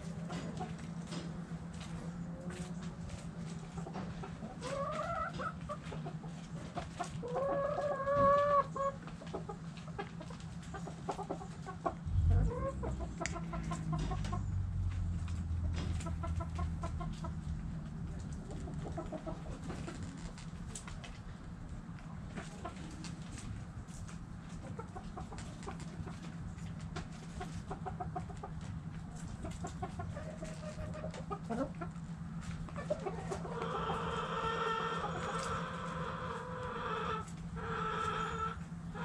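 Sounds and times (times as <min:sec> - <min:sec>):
chickens clucking: 0:00.0 - 0:39.0
low hum: 0:11.8 - 0:16.2.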